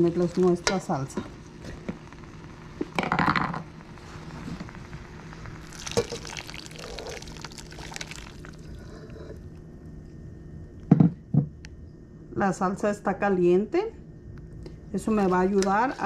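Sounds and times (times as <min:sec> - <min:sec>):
salsa pouring and splashing into pan: 0:05.6 - 0:08.8.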